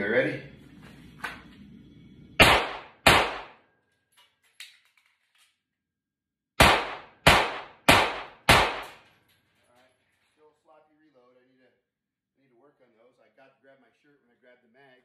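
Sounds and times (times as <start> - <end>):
pistol shots ringing in a room: 2.4 - 3.9, 6.6 - 9.5.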